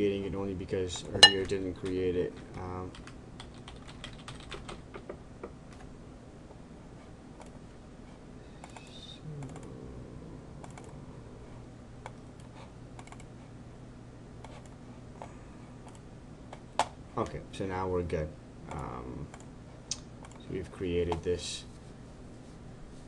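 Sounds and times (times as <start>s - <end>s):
faint low hum: 0.0s - 23.0s
computer keyboard typing: 2.6s - 5.0s, 12.1s - 13.3s.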